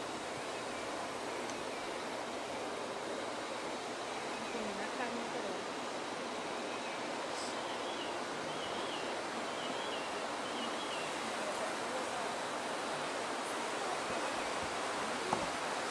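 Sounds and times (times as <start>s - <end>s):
waterfall rushing: 0.0s - 15.9s
bird singing: 6.6s - 11.2s.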